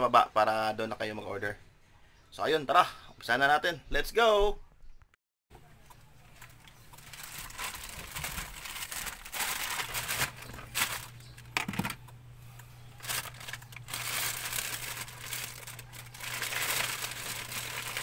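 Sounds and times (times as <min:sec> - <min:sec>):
plastic bag crinkling: 0:06.3 - 0:12.0, 0:12.6 - 0:18.0.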